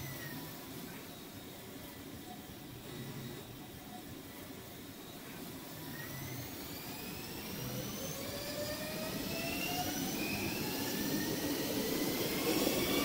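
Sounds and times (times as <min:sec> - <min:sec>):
train motors whining: 0:05.6 - 0:13.0.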